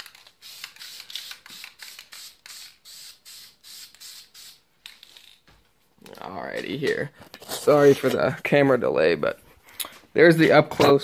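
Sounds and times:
spray paint can hissing: 0:00.0 - 0:04.6.

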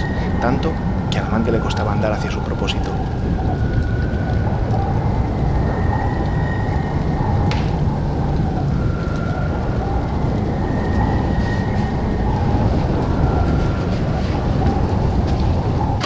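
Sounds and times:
strong wind blowing: 0:00.0 - 0:16.0.

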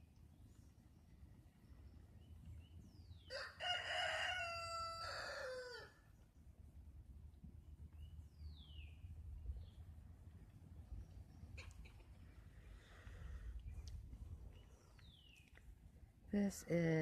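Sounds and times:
rooster crowing: 0:03.3 - 0:06.0.

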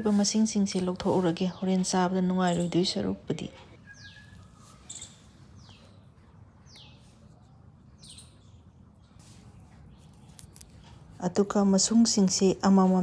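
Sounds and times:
faint bird chirps: 0:03.7 - 0:11.2.

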